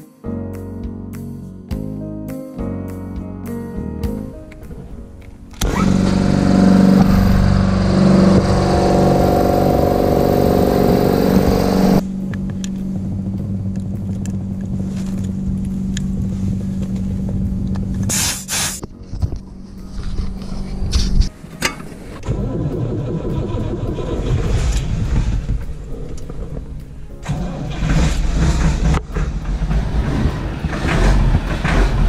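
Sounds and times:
machine motor humming: 5.6 - 12.0
short hissing bursts: 18.1 - 18.8.

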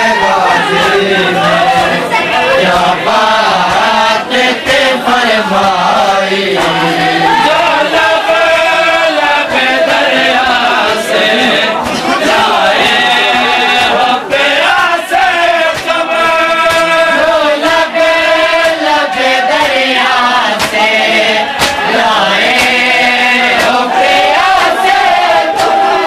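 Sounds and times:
men chanting in unison: 0.0 - 26.0
chest-beating slaps: 0.4 - 4.9, 11.4 - 25.8.

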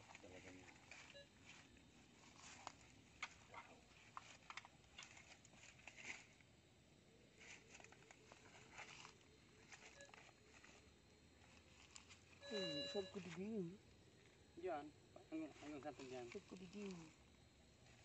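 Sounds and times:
rustling in grass and dry leaves: 0.0 - 6.5, 7.3 - 13.7, 15.4 - 17.1.

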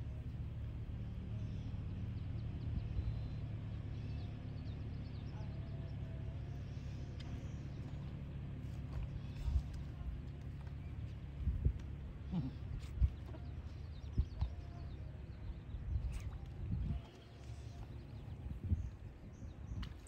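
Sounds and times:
wind rumble on microphone: 2.2 - 3.4, 8.8 - 20.0.

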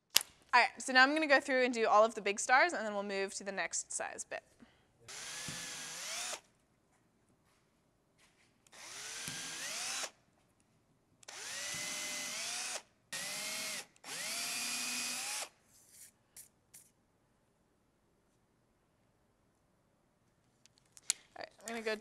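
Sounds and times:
cordless drill boring plywood: 5.1 - 6.4, 8.7 - 10.2, 11.2 - 15.6.

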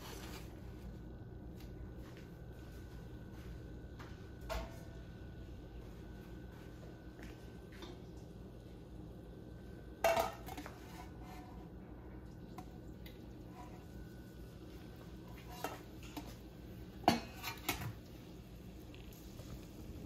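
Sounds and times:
low steady hum: 0.0 - 20.0
metal pots and utensils clanking: 10.0 - 11.6, 15.2 - 16.4, 17.0 - 18.0.

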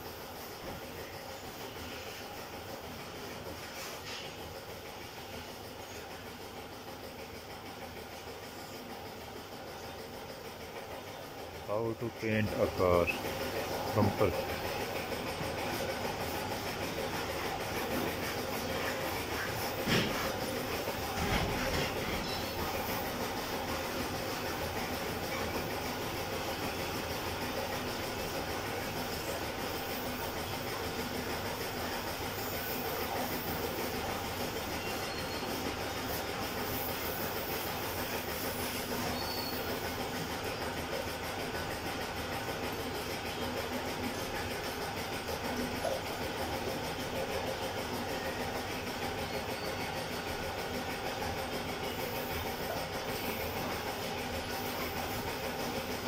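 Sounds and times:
air compressor running: 0.0 - 56.0
faint mechanical hum: 0.0 - 56.0
spray gun hissing: 36.0 - 39.0.

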